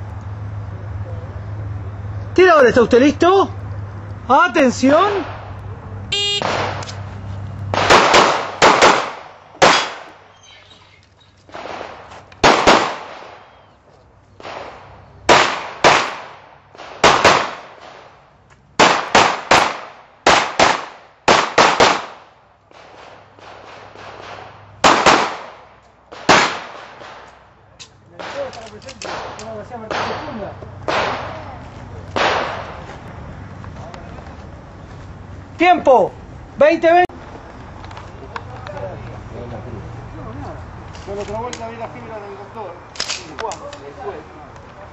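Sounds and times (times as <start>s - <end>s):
shot timer beep: 6.1s - 6.4s
handgun shots: 7.8s - 10.1s, 11.6s - 13.4s, 23.6s - 31.4s.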